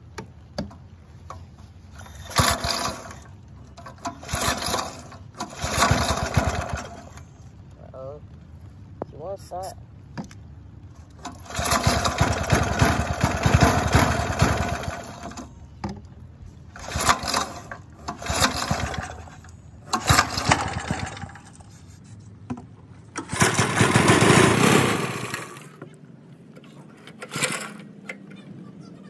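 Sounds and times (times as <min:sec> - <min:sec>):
small engine pull-starting: 0:01.9 - 0:07.3, 0:11.0 - 0:15.6, 0:16.7 - 0:21.8, 0:23.1 - 0:25.8, 0:26.6 - 0:28.4
engine sputtering: 0:01.9 - 0:07.4, 0:11.0 - 0:15.6, 0:16.7 - 0:21.9, 0:23.0 - 0:25.8.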